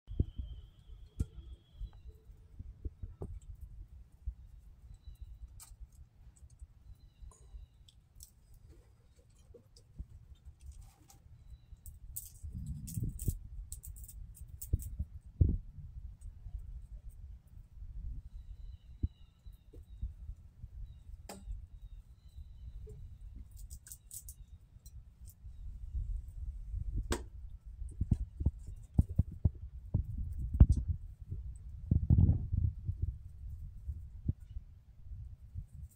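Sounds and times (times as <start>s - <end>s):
wind rumble on microphone: 0.1s - 5.4s, 11.9s - 23.6s, 24.9s - 35.9s
squirrel teeth gnawing food: 23.4s - 25.4s
low steady rumble: 24.4s - 35.9s.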